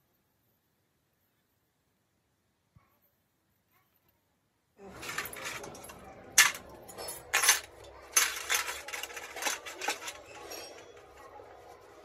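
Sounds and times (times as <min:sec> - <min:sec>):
metal parts clanking on metal basin: 0:04.8 - 0:11.6.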